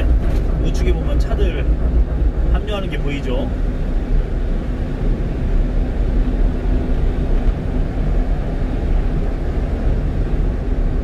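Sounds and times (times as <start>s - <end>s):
truck road rumble: 0.0s - 11.0s.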